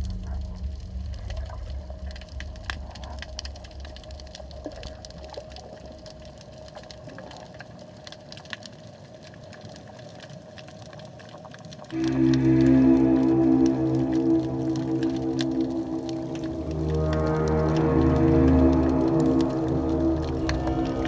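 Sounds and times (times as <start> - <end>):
low underwater rumble: 0.0 - 7.5, 12.0 - 21.0
crackle of underwater clicks: 0.0 - 21.0
faint steady hum: 11.9 - 21.0.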